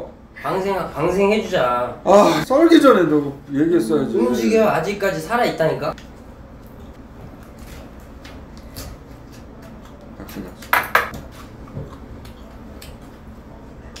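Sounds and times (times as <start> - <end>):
dishes clattering: 10.7 - 11.2
tableware clinking against dishes: 10.7 - 11.2.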